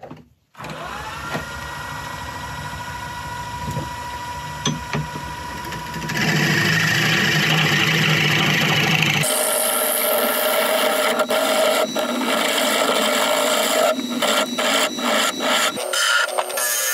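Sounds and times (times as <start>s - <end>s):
wood lathe motor humming: 0.6s - 16.9s
gouge cutting wood: 5.9s - 16.9s.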